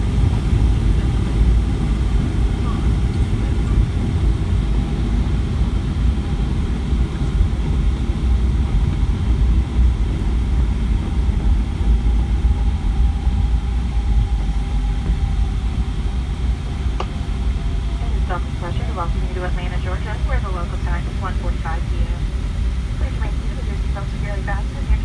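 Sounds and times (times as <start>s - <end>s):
airplane cabin rumble: 0.0s - 25.0s
faint steady engine tones: 0.0s - 25.0s
jet engines running: 0.0s - 25.0s.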